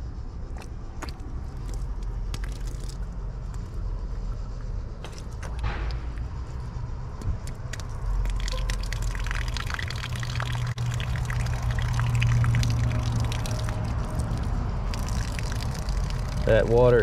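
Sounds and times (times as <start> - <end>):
steady low hum: 0.0 - 17.0
water trickling and dripping: 5.0 - 17.0.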